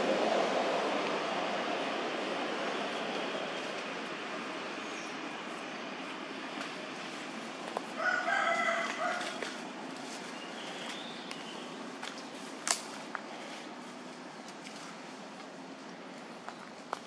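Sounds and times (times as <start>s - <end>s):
rooster crowing: 7.9s - 9.6s.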